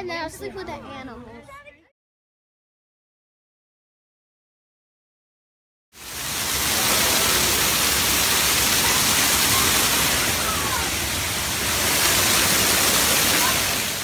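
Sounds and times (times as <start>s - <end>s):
waterfall splashing: 6.0s - 14.0s.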